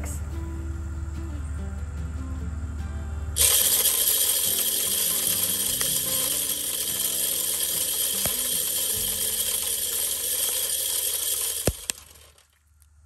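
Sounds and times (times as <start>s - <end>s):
feeder motor whirring: 3.4s - 12.4s
corn scattering: 3.4s - 12.8s.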